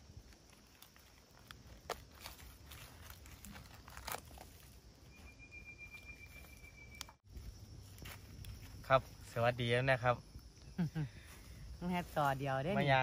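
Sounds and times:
dry leaves rustling and crackling: 0.0 - 5.3
faint thin high tone: 5.1 - 7.1.

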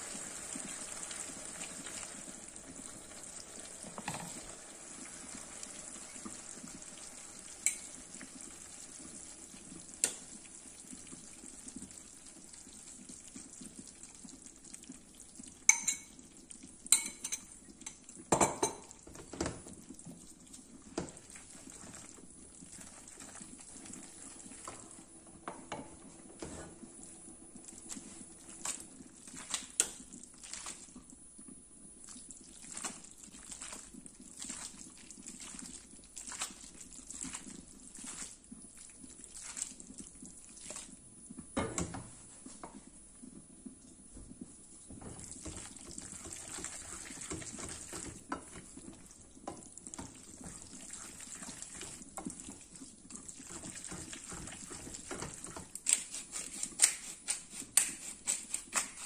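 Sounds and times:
pasta being stirred: 0.0 - 25.2, 27.6 - 31.2, 32.0 - 41.1, 42.1 - 59.0
pasta simmering in a frying pan: 0.0 - 59.0
utensils clinking on cookware: 15.7 - 16.2, 17.0 - 17.5.

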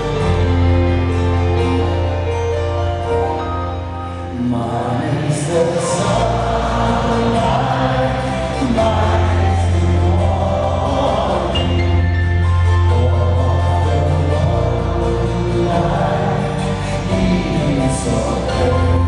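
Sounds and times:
bass: 0.0 - 19.0
piano: 0.0 - 19.0
voices singing along: 4.3 - 19.0
drums: 5.8 - 19.0.

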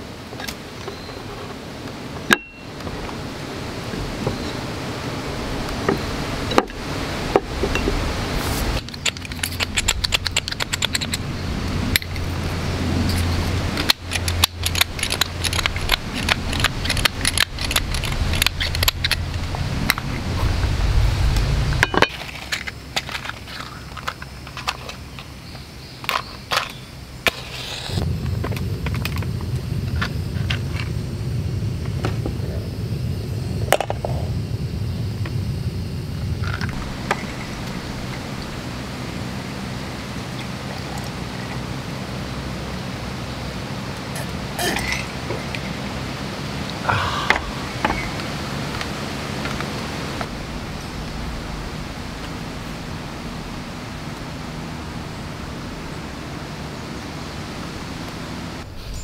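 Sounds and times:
gas burner flame rushing: 27.2 - 41.9.

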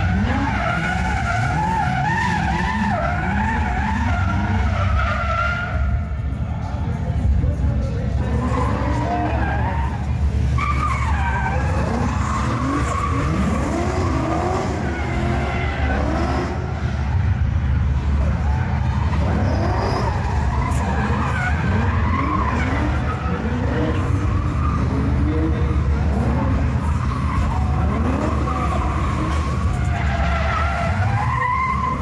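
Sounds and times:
engines revving: 0.0 - 32.0
tyres squealing: 8.2 - 17.4, 18.0 - 32.0.

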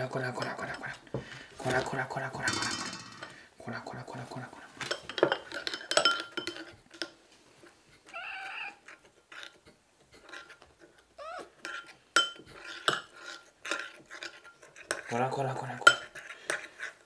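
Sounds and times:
dishes clinking: 2.4 - 3.4, 4.8 - 7.1, 11.7 - 13.1, 15.8 - 16.2.

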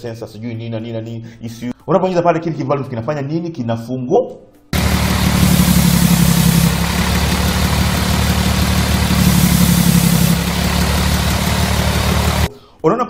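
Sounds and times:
high hiss: 4.8 - 12.5
truck diesel engine running: 4.8 - 12.5.

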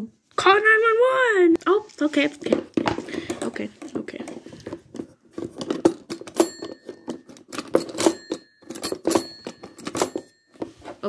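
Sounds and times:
toy telephone dial clicking: 5.7 - 10.4.

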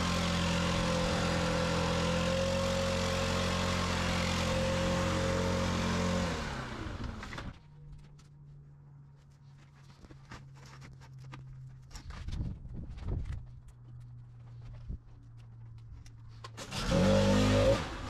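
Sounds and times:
leaf blower engine running: 0.0 - 7.6, 16.6 - 18.0.

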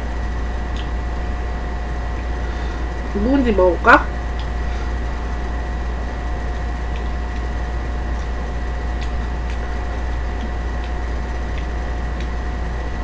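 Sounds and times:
constant electrical tone: 0.0 - 13.0
electric fan humming: 0.0 - 13.0
chopsticks clicking: 8.9 - 12.4.

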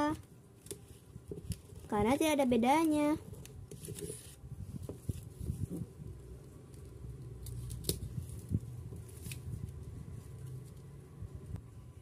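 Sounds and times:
paper rustling: 2.9 - 6.0.

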